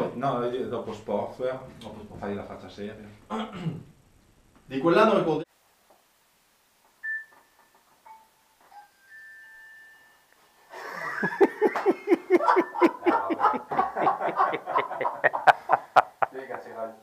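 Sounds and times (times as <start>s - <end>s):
hearty laughter: 10.7s - 16.8s.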